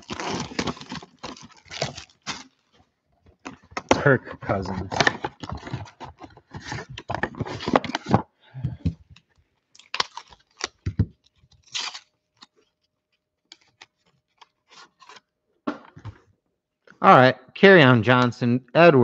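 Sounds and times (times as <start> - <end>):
cardboard box and foil packs tearing: 0.0 - 2.8, 3.4 - 8.2, 9.8 - 12.7.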